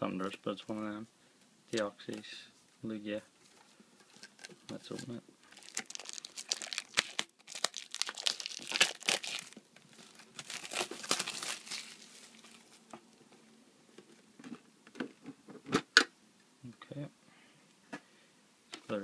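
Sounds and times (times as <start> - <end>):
plastic shrink wrap crackling: 4.1 - 12.9.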